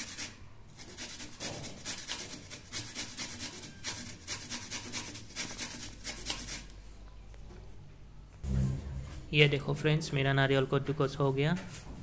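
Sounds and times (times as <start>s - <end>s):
coconut rasping on metal grater: 0.0s - 6.7s.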